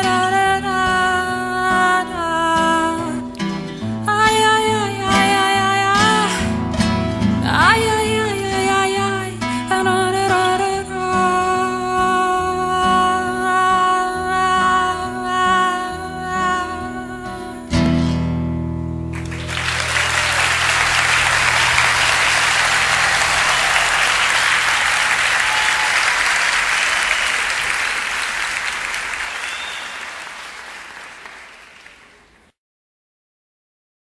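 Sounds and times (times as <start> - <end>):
acoustic guitar chord ringing: 15.5 - 25.3
audience applause: 19.2 - 32.4.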